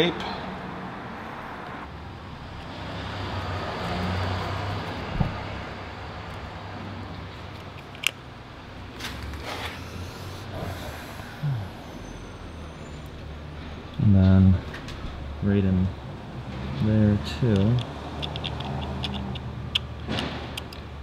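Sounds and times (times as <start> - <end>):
hex key clicks on screw: 17.6 - 19.9.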